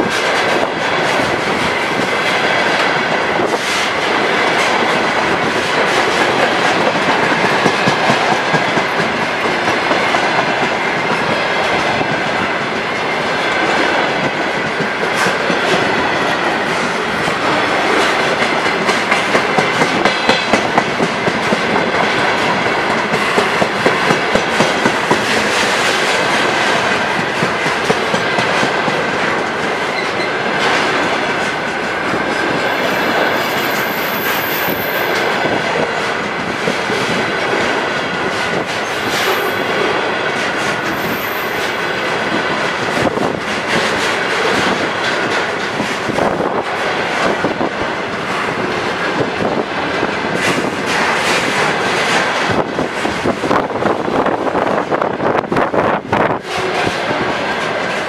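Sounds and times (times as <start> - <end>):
rhythmic clickety-clack of wheels: 0.0 - 58.0
train wheels rumbling on rails: 0.0 - 58.0.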